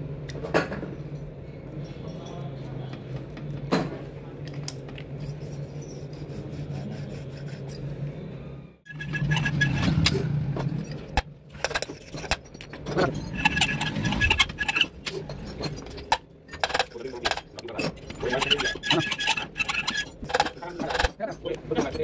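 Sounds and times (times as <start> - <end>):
metal tools clinking on engine: 8.9 - 22.0.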